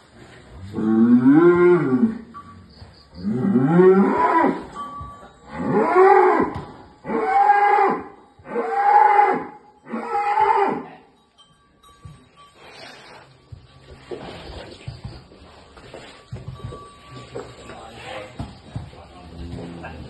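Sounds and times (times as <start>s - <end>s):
bull mooing loudly: 0.6s - 2.3s, 3.2s - 4.8s, 5.5s - 10.9s.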